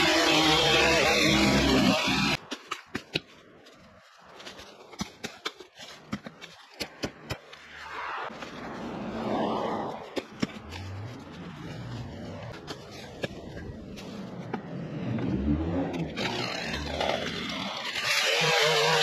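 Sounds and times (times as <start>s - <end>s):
noise swell: 7.5s - 10.2s.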